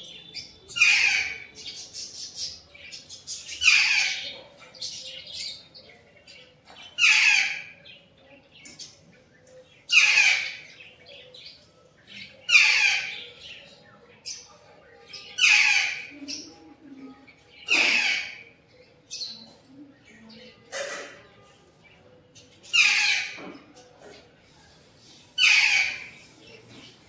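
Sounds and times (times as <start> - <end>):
parrot screeching: 25.4 - 26.1.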